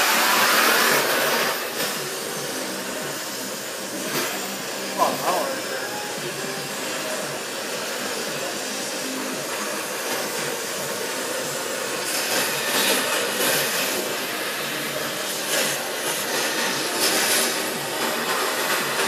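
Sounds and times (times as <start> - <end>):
cutting torch hissing: 0.0 - 19.0.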